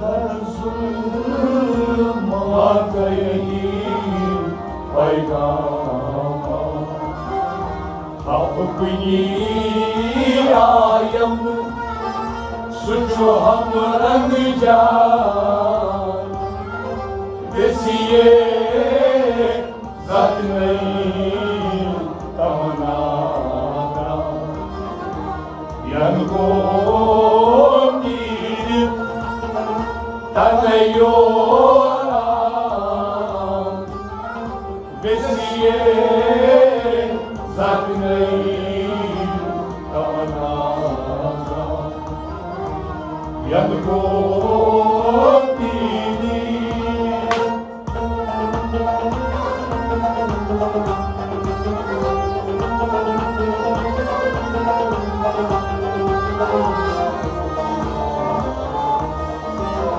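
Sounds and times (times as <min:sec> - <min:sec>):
man singing: 0:00.0 - 0:07.4, 0:08.2 - 0:11.7, 0:12.7 - 0:16.4, 0:17.5 - 0:24.9, 0:25.8 - 0:29.3, 0:30.4 - 0:33.8, 0:34.9 - 0:42.0, 0:43.4 - 0:47.7
bowed string instrument: 0:00.0 - 0:59.9
harmonium: 0:00.0 - 0:59.9.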